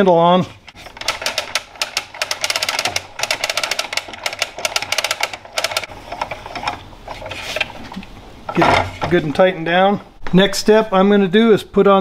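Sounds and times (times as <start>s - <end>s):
downrigger crank clicking: 0.7s - 6.8s.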